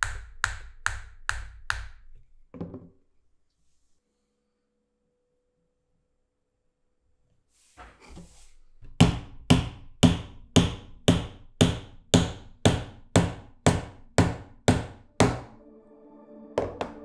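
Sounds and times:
wooden mallet knocking on wood: 9.0 - 15.6
music: 14.8 - 17.0.

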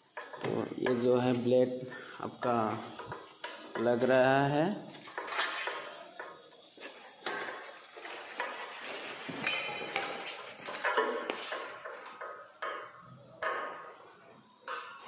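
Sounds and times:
metallic clinks and rattles: 9.4 - 11.1.

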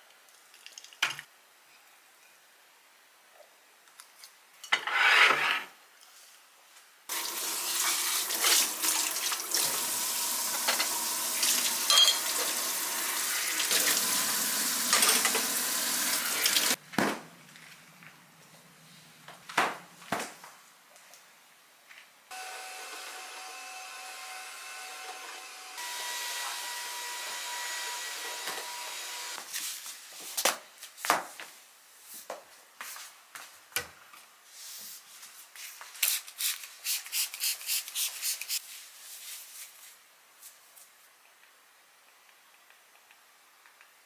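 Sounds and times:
small appliance motor running: 22.3 - 29.4.

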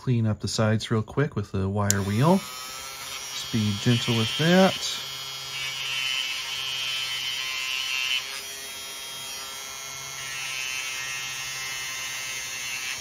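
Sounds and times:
wire wheel brushing metal: 1.9 - 5.2
rotary tool motor whine: 1.9 - 13.0.

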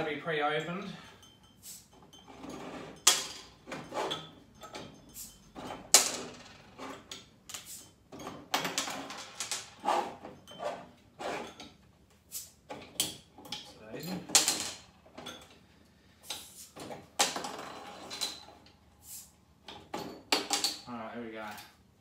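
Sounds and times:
glass bottles clinking: 0.0 - 11.8.

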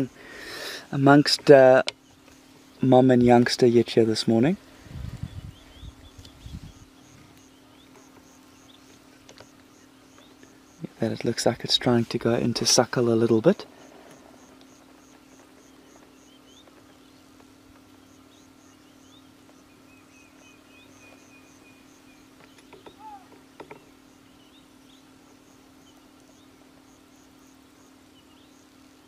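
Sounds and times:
birds chirping: 0.0 - 29.0
insect chirping: 4.7 - 11.0, 13.6 - 29.0.

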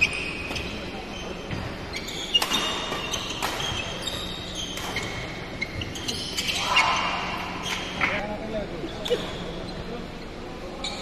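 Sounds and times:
shoes squeaking on court floor: 0.0 - 8.2
rackets striking shuttlecock: 2.3 - 4.0.

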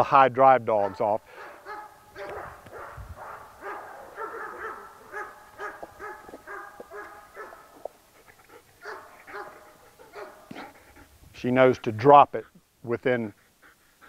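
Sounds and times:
dogs barking and whining: 0.7 - 11.1.

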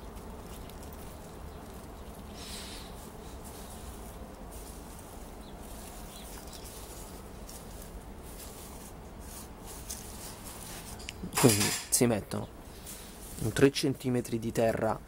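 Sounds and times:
low background rumble: 0.0 - 11.1.

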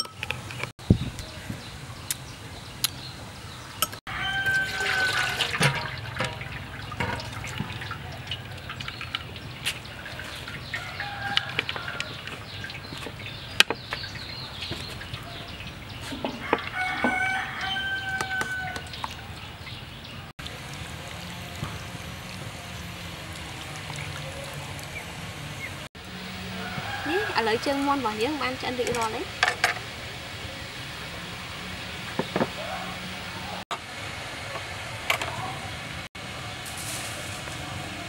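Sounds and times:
rooster crowing: 4.1 - 5.7, 10.7 - 12.4, 16.3 - 18.9, 26.1 - 28.0, 31.6 - 33.6.

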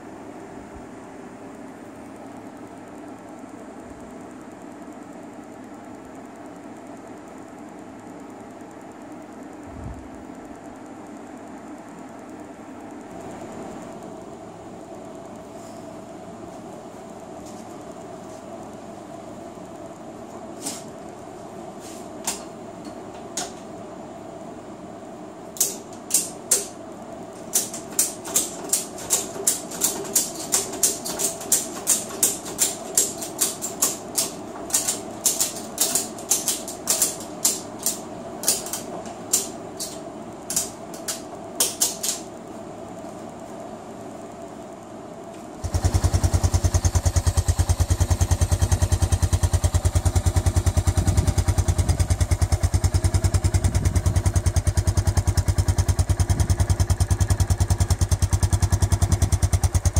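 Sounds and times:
atv engine running: 45.6 - 59.9.

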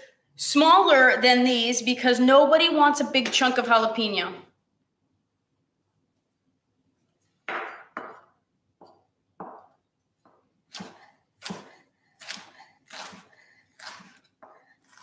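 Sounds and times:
knife chopping on wooden board: 10.3 - 15.0.

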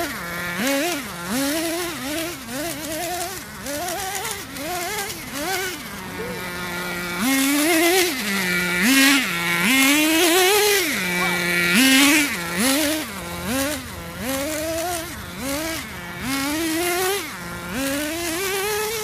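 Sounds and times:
model car motor revving: 0.0 - 19.0.

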